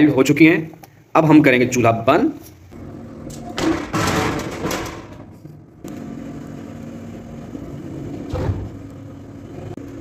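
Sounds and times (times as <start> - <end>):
gas burner humming: 4.6 - 10.0.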